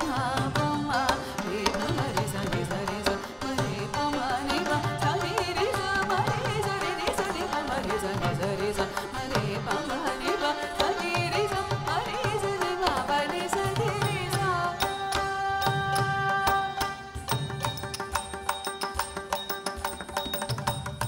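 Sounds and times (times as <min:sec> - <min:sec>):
person singing: 0:00.0 - 0:17.4.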